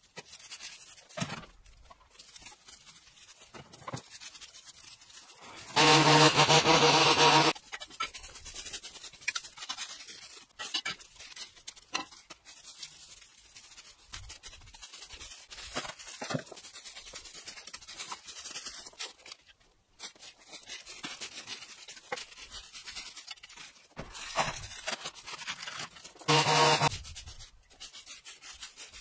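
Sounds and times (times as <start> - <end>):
rake clatter: 0.0 - 19.4
rake scratching through dry leaves: 0.0 - 29.0.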